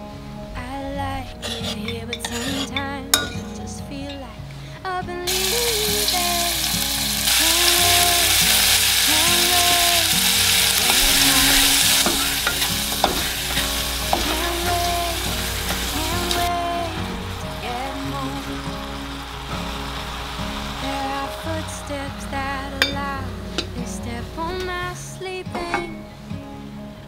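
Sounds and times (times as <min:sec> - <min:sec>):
food sizzling in hot oil: 0:05.3 - 0:25.0.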